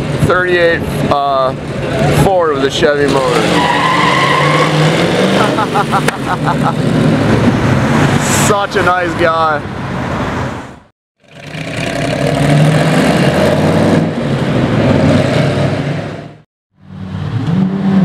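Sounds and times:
car engine pulling away: 11.2 - 18.0.

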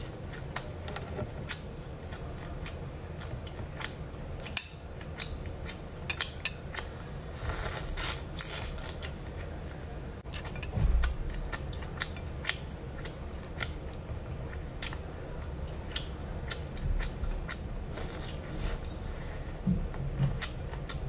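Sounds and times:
chewing with crisp clicks: 0.2 - 7.0, 8.4 - 19.0, 20.2 - 21.0
low hum: 9.5 - 20.7.

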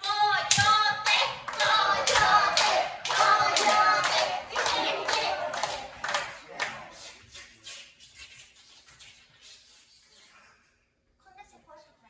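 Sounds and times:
voices singing: 0.0 - 7.1
people clapping in rhythm: 0.0 - 8.4.

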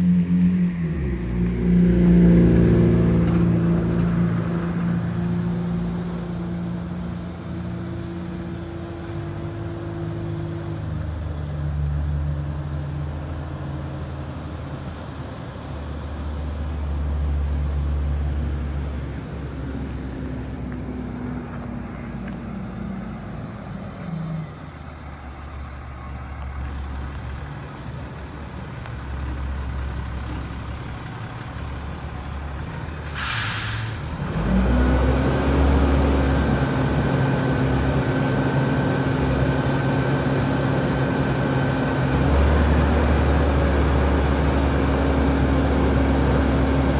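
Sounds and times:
garbage truck engine revving: 29.4 - 46.9
air brakes hissing: 33.0 - 34.1.

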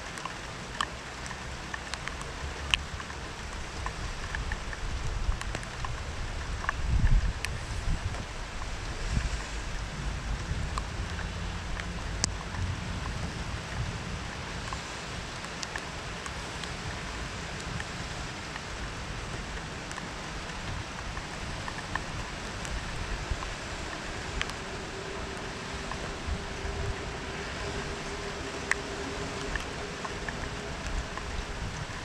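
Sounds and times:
raindrops ticking close by: 0.0 - 32.0
steady rain falling: 0.0 - 32.0.

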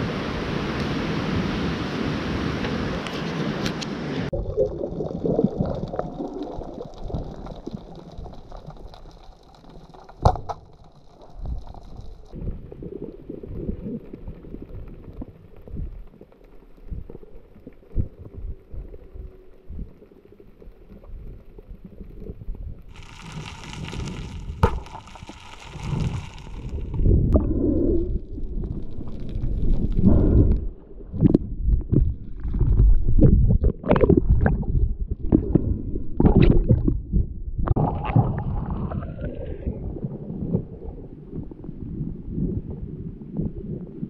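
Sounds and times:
wind: 0.0 - 4.4
underwater water movement: 3.0 - 44.0.

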